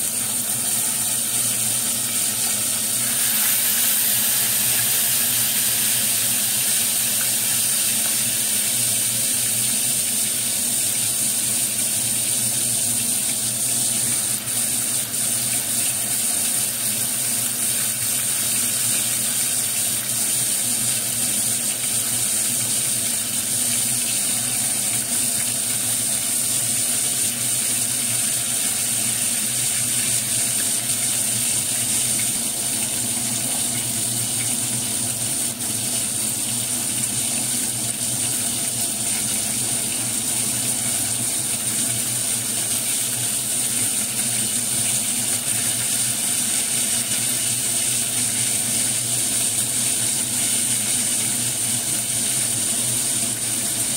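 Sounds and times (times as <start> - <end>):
fish deep-frying in oil: 0.0 - 53.9.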